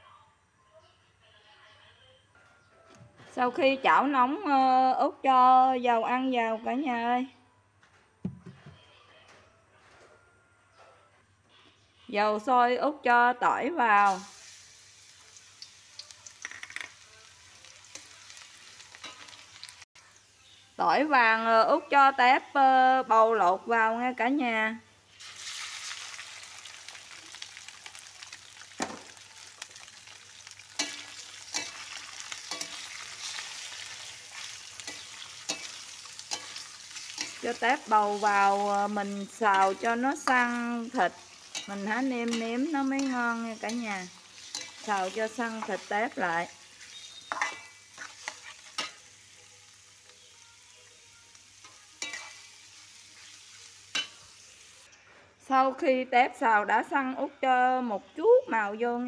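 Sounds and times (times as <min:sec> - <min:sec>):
shrimp sizzling in hot oil: 0:14.0 - 0:22.2, 0:25.0 - 0:54.9
metal spatula scraping wok: 0:30.4 - 0:49.2, 0:51.6 - 0:54.6.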